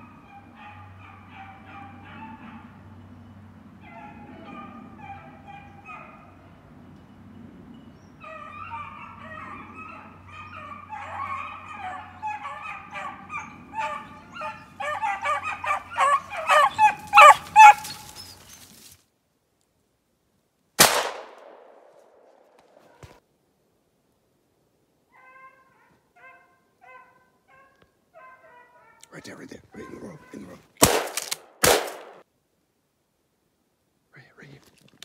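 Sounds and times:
hounds baying: 0.0 - 18.7, 25.1 - 30.8
gunshot with echo: 20.8 - 22.2, 30.8 - 32.2.

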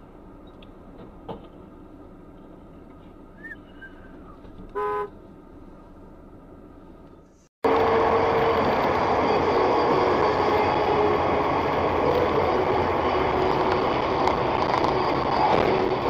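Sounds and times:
car cabin road noise: 0.0 - 7.8.

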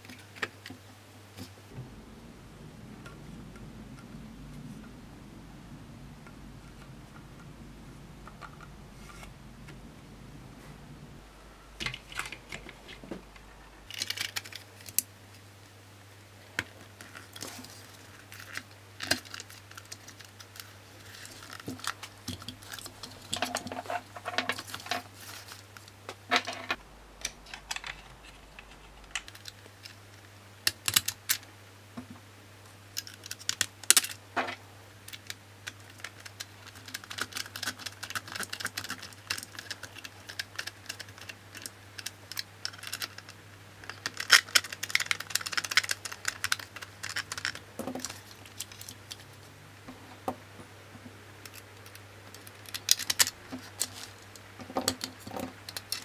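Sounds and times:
plastic parts clicking and tapping: 33.0 - 49.2, 51.4 - 56.0.

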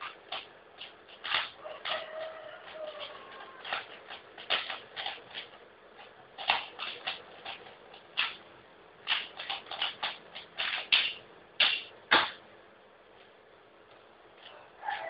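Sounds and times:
plastic puzzle cube clicking: 0.0 - 2.0, 2.6 - 8.4, 9.0 - 12.3.

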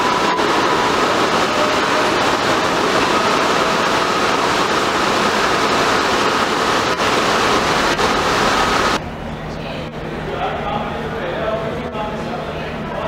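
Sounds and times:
train wheels rumbling on rails: 0.0 - 9.0
high steady train whine: 0.0 - 13.0.

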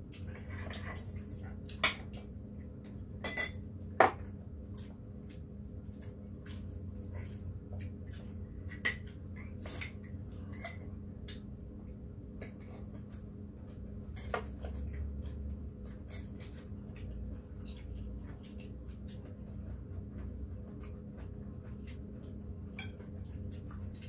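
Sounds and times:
low steady hum: 0.0 - 24.0
utensils clinking against dishes: 0.2 - 2.1, 3.2 - 4.2, 8.6 - 10.9, 15.8 - 16.7, 22.7 - 23.8.

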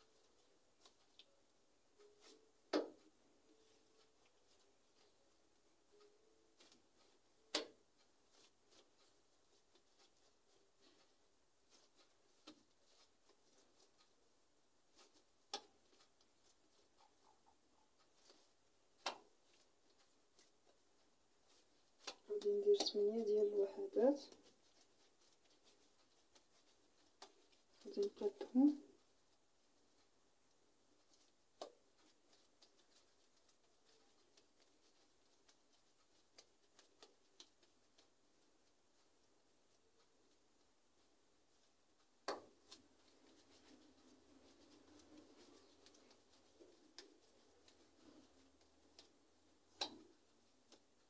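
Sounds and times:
faint ticks of hands kneading dough: 0.0 - 51.0
dough balls tapping on countertop: 2.7 - 3.0, 42.2 - 42.7.

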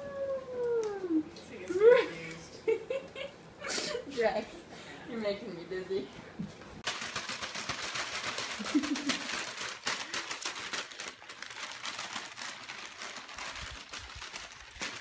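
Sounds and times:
plastic bag crinkling: 6.8 - 15.0.

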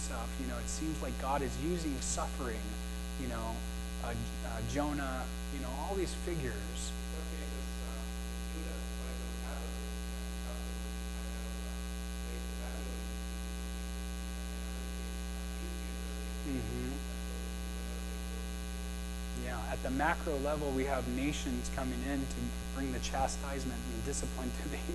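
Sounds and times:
electrical mains hum: 0.0 - 24.9
faint distant voice: 3.2 - 13.0, 14.4 - 18.6.

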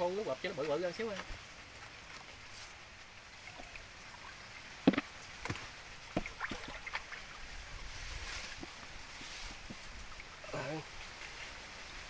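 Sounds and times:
shallow water sloshing: 3.4 - 12.0
short sharp splashes: 3.5 - 7.5.

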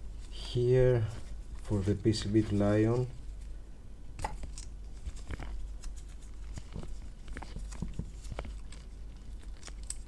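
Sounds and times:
steady low hum: 0.0 - 10.0
paper tape clicks and rustles: 4.2 - 10.0.

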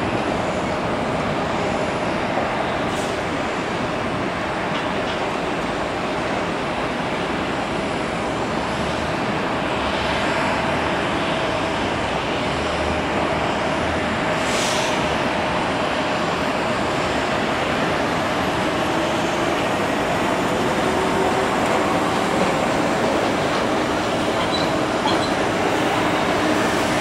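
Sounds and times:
jet engines rushing with whine: 0.0 - 27.0
brief hiss: 14.4 - 15.0.

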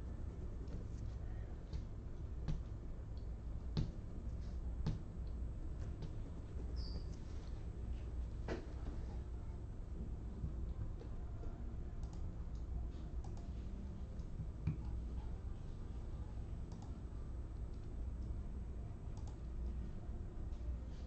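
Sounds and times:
steady low hum: 0.0 - 21.0
faint clicks: 11.0 - 13.5, 16.7 - 17.0, 19.1 - 19.8.

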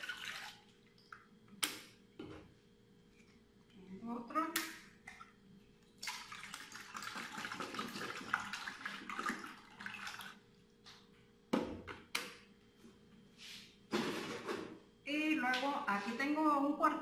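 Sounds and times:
milk pouring into a pot: 0.0 - 0.9, 6.0 - 10.5.

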